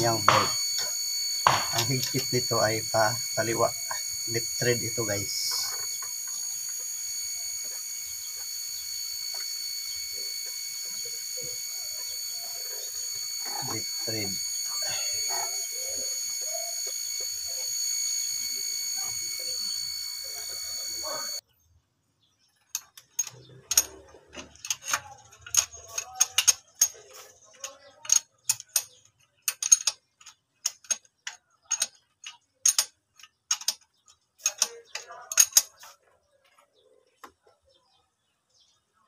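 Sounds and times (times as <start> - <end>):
thin high whine: 0.0 - 21.4
wrench clicking: 22.7 - 35.8.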